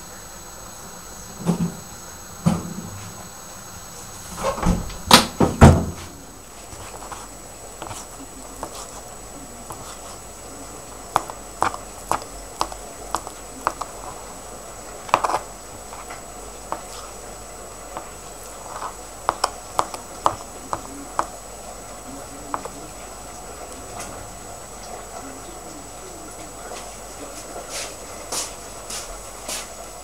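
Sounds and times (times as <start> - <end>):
knife tapping plastic cutting board: 10.9 - 14.2, 15.0 - 17.0, 17.9 - 21.4, 22.4 - 22.9.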